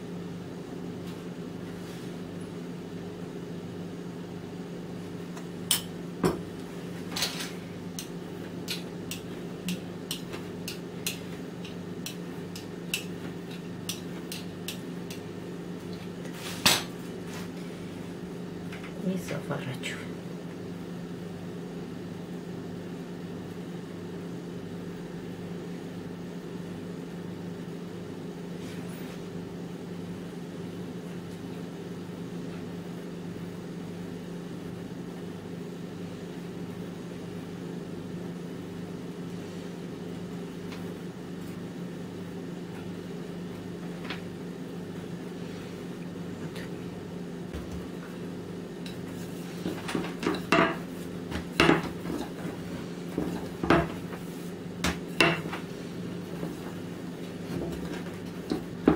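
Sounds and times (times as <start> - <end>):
low mechanical hum: 0.0 - 58.9.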